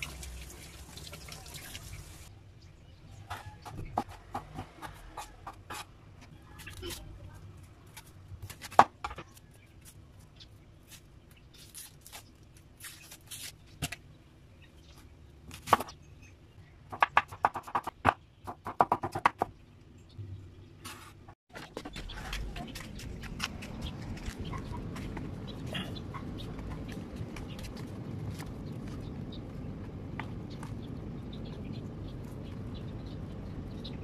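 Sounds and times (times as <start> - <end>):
knife chopping on wooden board: 16.9 - 19.5.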